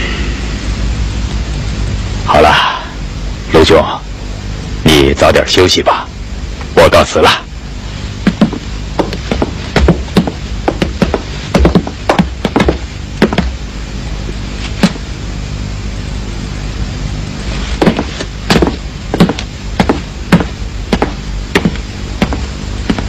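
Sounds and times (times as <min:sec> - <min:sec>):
steady low hum: 0:00.0 - 0:23.0
footsteps on hard floor: 0:08.2 - 0:13.6, 0:14.6 - 0:15.1, 0:17.6 - 0:23.0.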